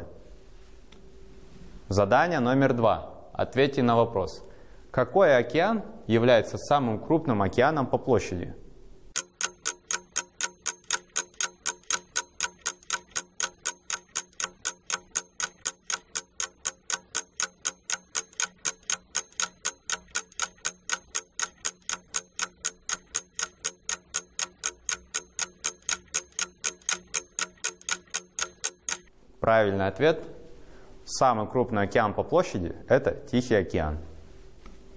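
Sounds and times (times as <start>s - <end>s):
clock ticking: 9.1s - 29.1s.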